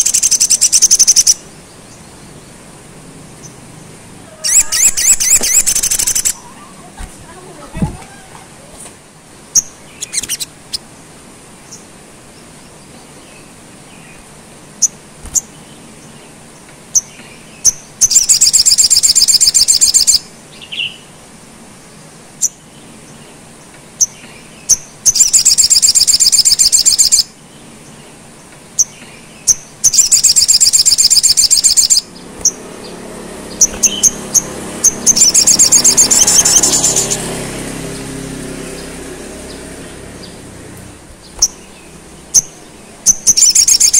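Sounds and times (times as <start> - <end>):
bird trills: 0.0 - 2.0, 4.3 - 7.0, 9.5 - 10.9, 17.0 - 21.0, 24.0 - 27.3, 28.8 - 37.3, 41.2 - 43.9
bird chirps: 0.0 - 2.6, 3.2 - 8.4, 9.5 - 10.9, 14.8 - 21.1, 22.4 - 28.2, 28.8 - 43.9.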